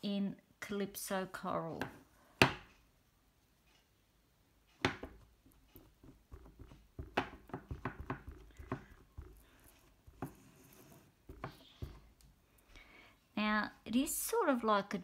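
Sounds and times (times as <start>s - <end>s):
stamp tapping on ink pad: 4.9s - 9.5s.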